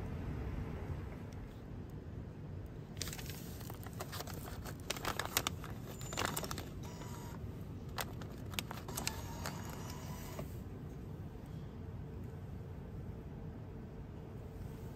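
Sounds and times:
banknotes crinkling: 3.0s - 10.6s.

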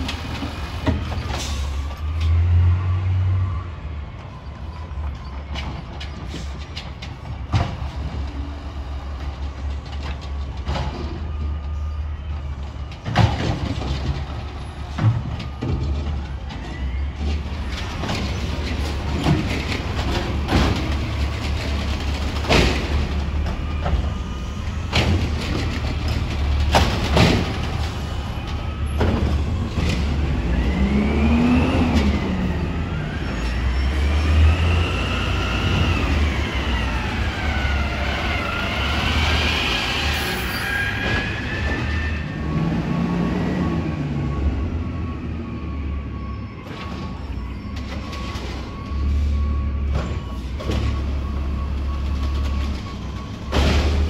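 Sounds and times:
diesel engine rumble: 0.0s - 40.2s.

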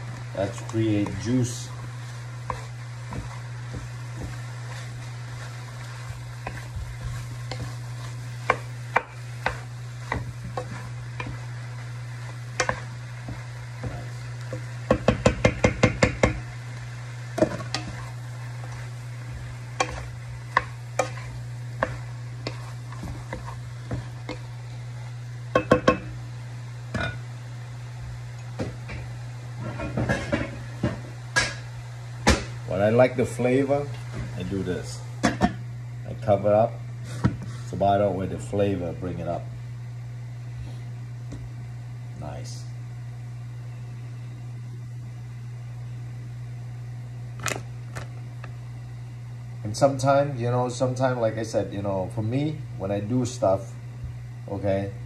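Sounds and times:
wooden spatula stirring in wok: 0.0s - 26.3s
steady low hum: 0.0s - 55.0s
spatula knocking on metal wok: 14.8s - 16.4s, 25.5s - 26.1s.

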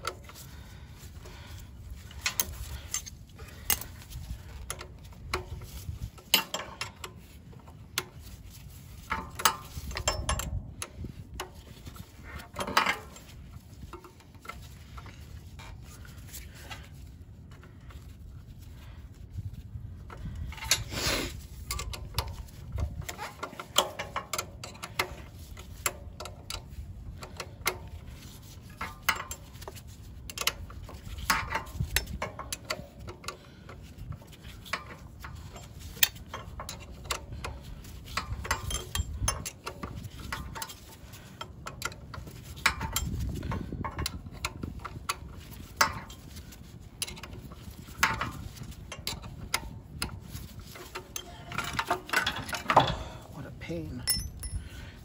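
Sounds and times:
wrench clicking on metal bolts: 6.2s - 7.2s, 34.6s - 53.3s, 54.0s - 54.7s.

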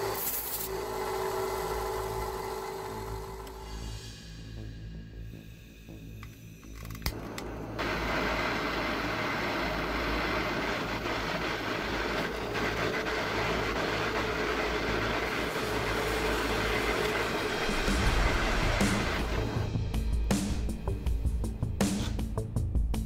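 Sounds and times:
gas torch hissing flame: 5.4s - 19.7s.

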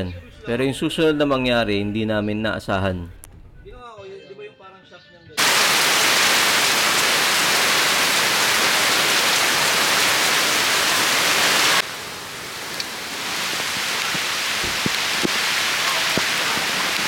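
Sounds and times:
heavy rain hissing: 5.4s - 17.0s
water drips ticking: 12.7s - 13.0s.

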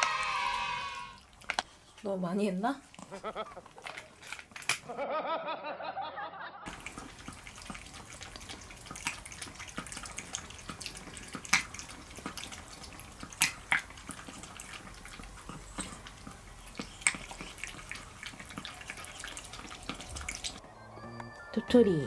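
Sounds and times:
dog lapping and chewing: 1.2s - 4.8s, 6.7s - 20.6s.

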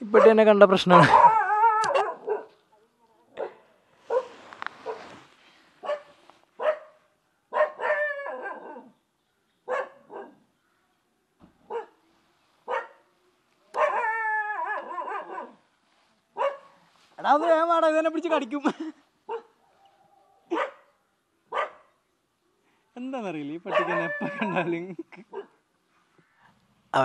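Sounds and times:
dog barking: 1.0s - 2.6s, 3.4s - 5.1s, 5.8s - 8.9s, 9.7s - 10.4s, 11.7s - 12.0s, 12.7s - 13.1s, 13.8s - 15.6s, 16.4s - 16.8s, 19.3s - 20.9s, 21.5s - 21.9s, 23.7s - 24.4s, 25.3s - 25.6s.

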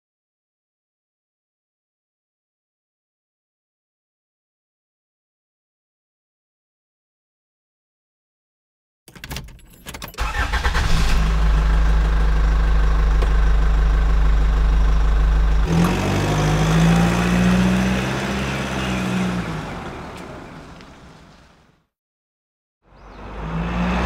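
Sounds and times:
car engine starting and idling: 10.1s - 21.6s.

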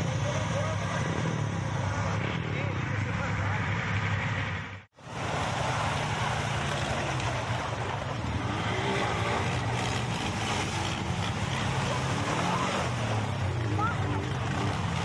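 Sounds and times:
quad bike engines running: 0.0s - 15.0s
water splashing: 5.0s - 15.0s.

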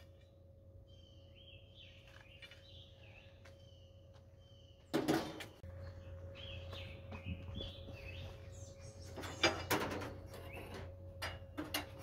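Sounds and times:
songbirds chirping: 0.0s - 12.0s.

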